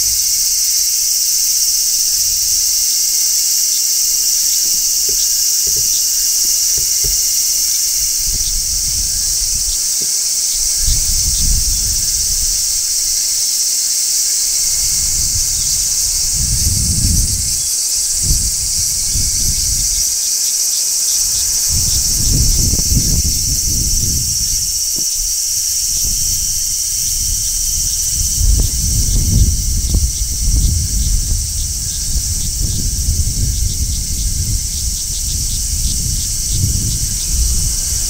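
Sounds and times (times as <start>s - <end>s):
cicadas shrilling: 0.0s - 38.0s
wind rumbling on microphone: 4.0s - 13.3s, 14.4s - 20.3s, 21.0s - 38.0s.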